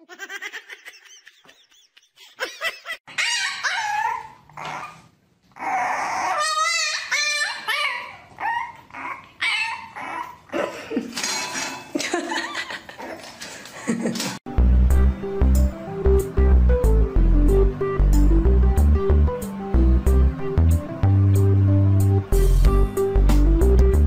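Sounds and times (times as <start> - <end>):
dog yipping and barking: 3.1 - 5.0, 5.6 - 10.5.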